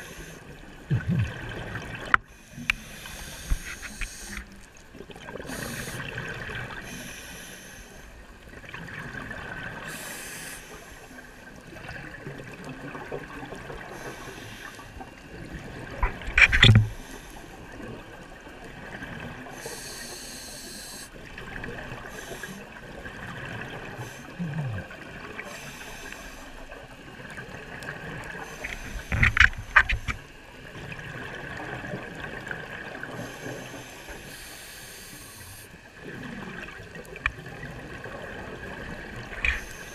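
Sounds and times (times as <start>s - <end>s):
underwater hiss: 0.0s - 4.8s, 5.4s - 8.2s, 9.6s - 11.9s, 13.6s - 18.0s, 19.4s - 22.8s, 23.7s - 30.4s, 32.9s - 36.2s, 38.8s - 39.9s.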